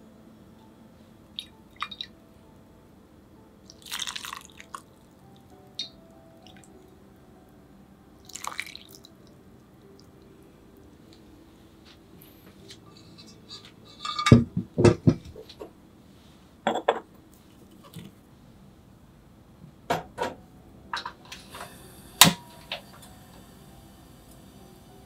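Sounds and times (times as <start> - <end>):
gas burner ignition click: 21.3 - 23.2.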